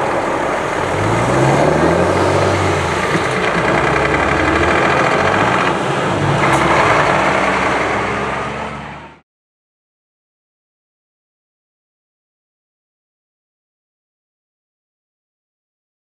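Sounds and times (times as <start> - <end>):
truck driving past: 0.0 - 9.2
wheel loader engine: 0.0 - 9.2.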